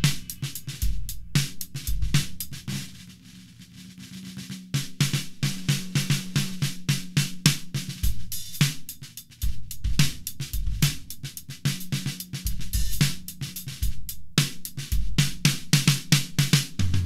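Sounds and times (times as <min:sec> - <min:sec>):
bass drum kicks: 0:00.0 - 0:02.3
hi-hat and cymbal strokes: 0:00.0 - 0:17.0
snare drum: 0:00.0 - 0:17.0.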